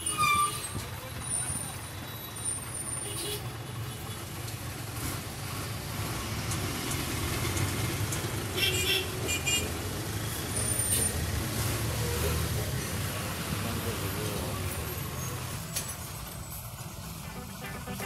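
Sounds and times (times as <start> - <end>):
bus engine running: 0.0 - 18.0
street traffic: 0.0 - 18.0
short high-pitched sounds: 17.2 - 18.0.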